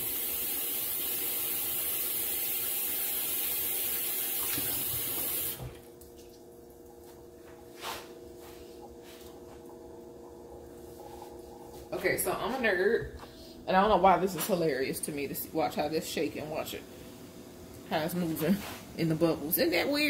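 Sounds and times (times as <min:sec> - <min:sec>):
faucet water running into sink: 0:00.0 - 0:05.8
faint steady hum: 0:00.0 - 0:20.0.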